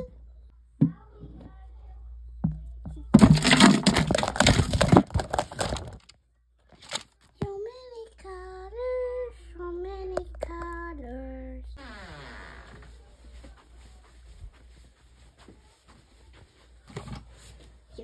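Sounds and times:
crackling handling noise: 3.1 - 7.4.

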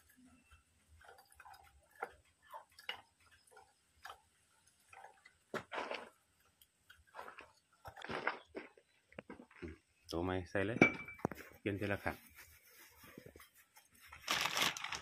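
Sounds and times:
scraping rustle: 11.3 - 15.0.

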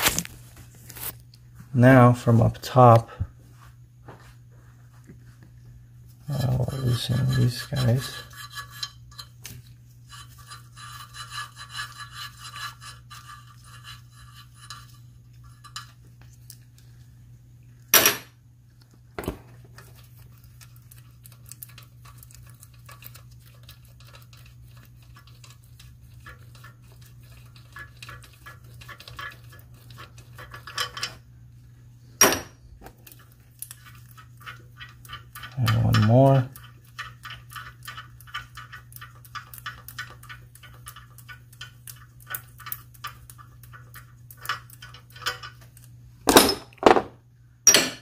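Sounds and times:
tool clinking on metal: 47.7 - 48.0.

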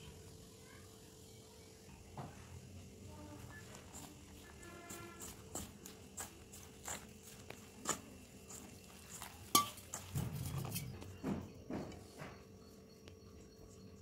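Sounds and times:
pot knocking steel mixing bowl: 9.5 - 9.9.

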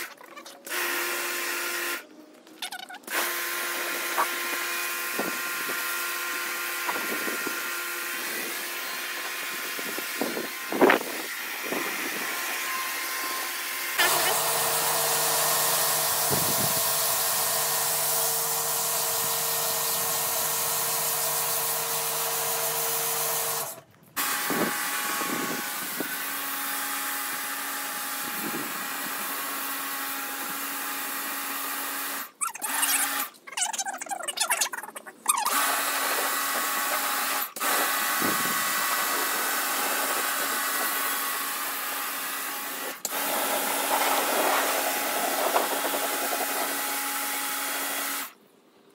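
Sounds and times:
high-pressure water jet hissing: 3.1 - 26.4, 35.5 - 48.3
pressure washer motor hum: 3.1 - 33.3, 35.4 - 48.3.

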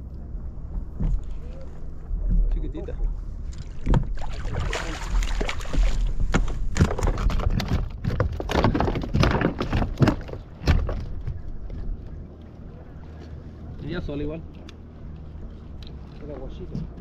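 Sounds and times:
water splashing around kayak: 0.6 - 13.8.

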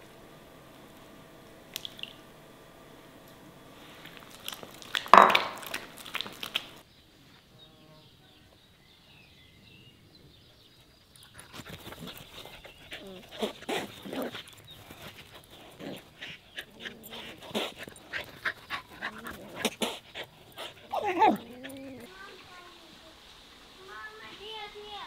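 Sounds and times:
dog whining: 11.9 - 22.2.

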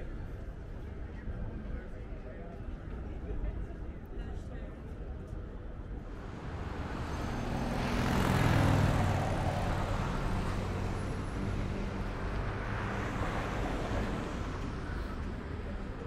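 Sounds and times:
steady traffic noise: 0.0 - 16.0
vehicle engine passing: 6.0 - 16.0.

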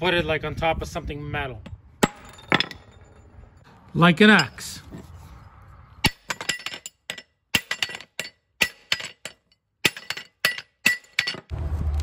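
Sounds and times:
hammer striking metal: 6.0 - 11.5.

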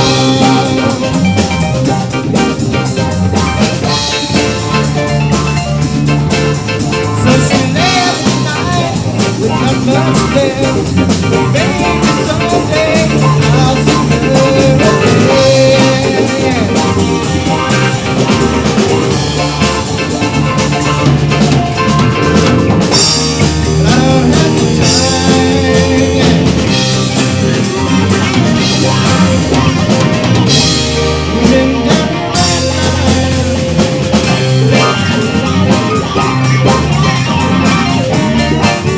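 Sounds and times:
bass guitar: 0.0 - 38.9
drum kit: 0.0 - 38.9
electric guitars: 0.0 - 38.9
keyboard: 0.0 - 38.9.

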